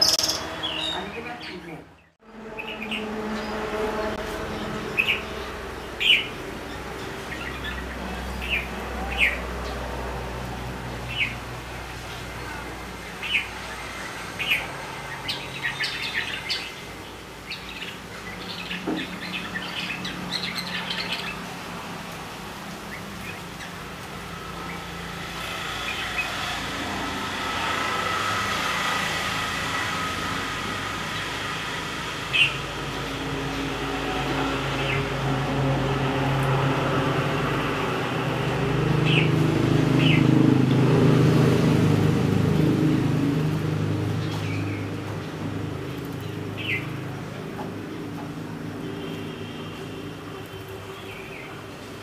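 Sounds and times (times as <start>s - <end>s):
bird chirps: 0.0s - 3.1s
vehicle engine hum: 0.0s - 52.0s.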